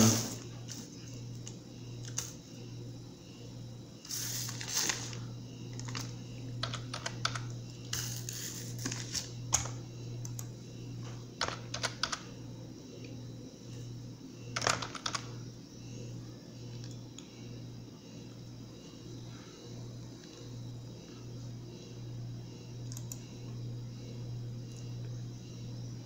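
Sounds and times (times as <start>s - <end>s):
steady low hum: 0.0s - 26.0s
computer keyboard typing: 4.5s - 10.5s, 11.4s - 12.3s, 14.6s - 15.3s, 22.8s - 23.2s.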